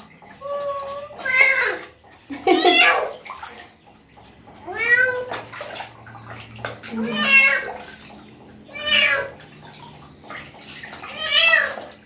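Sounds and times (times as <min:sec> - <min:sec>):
light water splashing: 0:00.0 - 0:12.0
cat meowing: 0:07.0 - 0:07.7, 0:08.7 - 0:09.4, 0:11.0 - 0:11.9.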